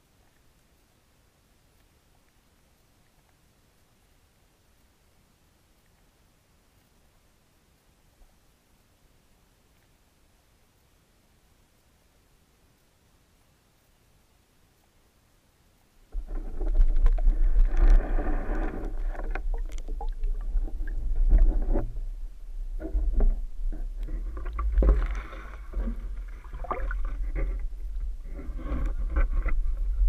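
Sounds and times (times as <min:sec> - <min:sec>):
water rushing against camera housing: 0:16.1 - 0:30.0.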